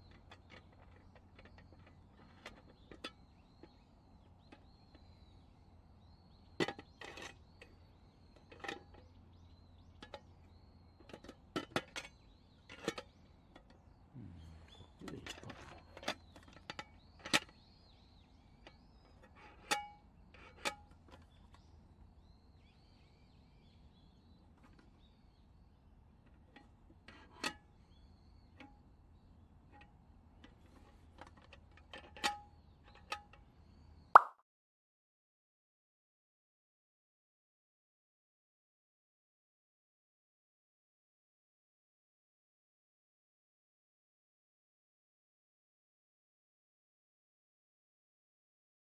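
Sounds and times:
metal handle clinking against pot: 0:15.1 - 0:17.5.

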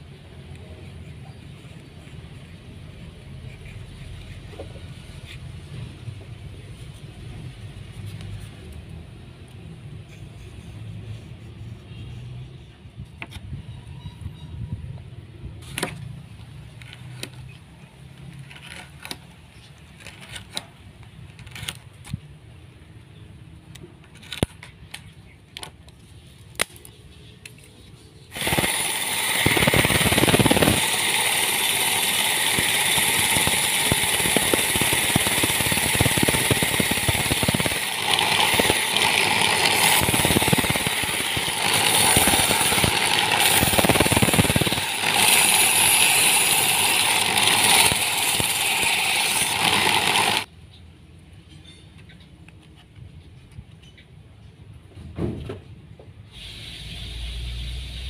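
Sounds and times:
belt sander grinding: 0:28.3 - 0:50.5.

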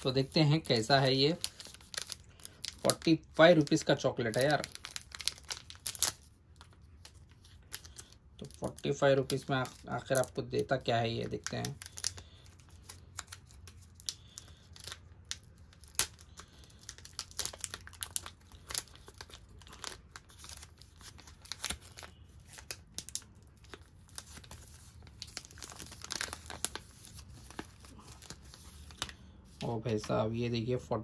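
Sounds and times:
foil wrapper crinkling and tearing: 0:00.0 - 0:30.1.

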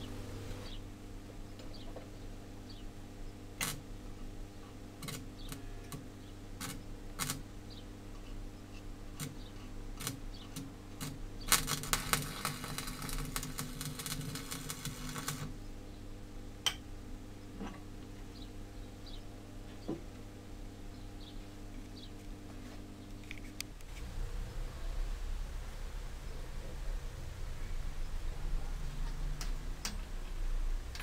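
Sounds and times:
arc welding crackle: 0:03.6 - 0:03.9, 0:05.0 - 0:07.5, 0:09.1 - 0:15.6.

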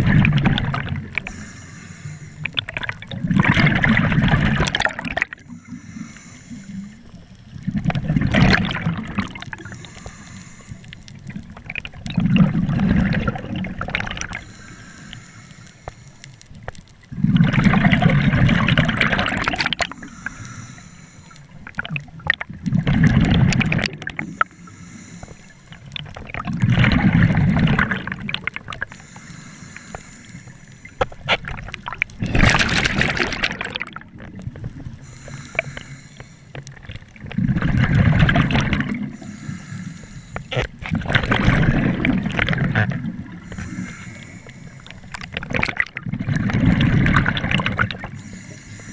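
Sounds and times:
diver's regulator bubbling exhalations: 0:00.0 - 0:01.5, 0:02.3 - 0:10.3, 0:11.2 - 0:14.6, 0:17.1 - 0:20.5, 0:21.6 - 0:24.6, 0:25.7 - 0:29.2, 0:30.9 - 0:36.0, 0:36.6 - 0:39.7, 0:40.4 - 0:48.9
faint regulator hiss: 0:01.1 - 0:02.7, 0:05.4 - 0:07.6, 0:09.6 - 0:11.6, 0:14.3 - 0:17.0, 0:19.8 - 0:21.7, 0:24.1 - 0:26.1, 0:28.8 - 0:31.4, 0:34.4 - 0:36.9, 0:38.9 - 0:40.8, 0:43.2 - 0:45.5, 0:48.0 - 0:48.9.

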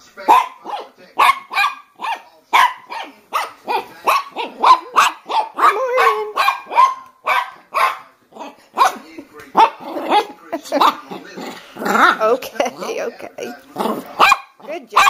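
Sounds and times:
small dog barking: 0:00.3 - 0:09.0, 0:09.6 - 0:10.9, 0:14.2 - 0:15.0.

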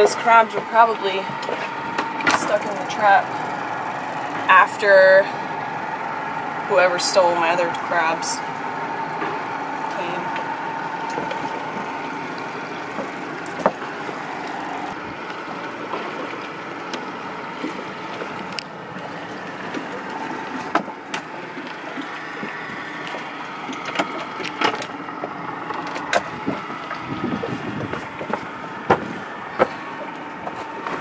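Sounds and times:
outboard motor running: 0:00.0 - 0:31.0
clicks and knocks on hull: 0:12.6 - 0:31.0.

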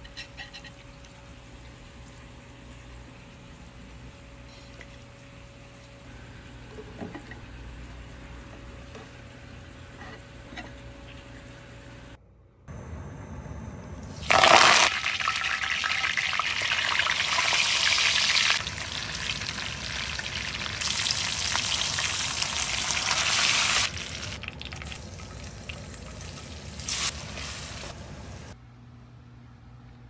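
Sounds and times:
hot oil sizzling and spluttering: 0:14.2 - 0:28.6
loud crackle of leaves in oil: 0:18.5 - 0:28.0.

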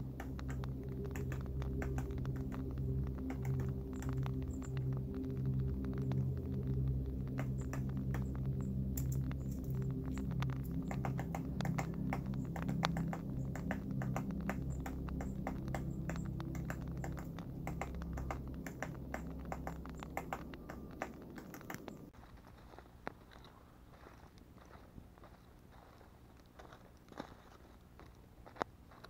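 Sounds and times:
low steady drone: 0:00.0 - 0:22.2
woodpecker pecking at tree bark: 0:00.1 - 0:22.1.

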